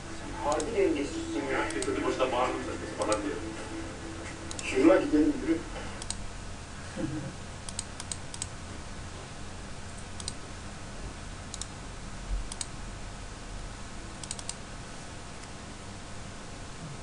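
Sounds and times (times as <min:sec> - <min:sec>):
steady low hum: 0:00.0 - 0:17.0
computer mouse clicks: 0:06.0 - 0:06.2, 0:07.6 - 0:08.6, 0:09.9 - 0:10.4, 0:11.5 - 0:11.7, 0:12.5 - 0:12.7, 0:14.2 - 0:14.6.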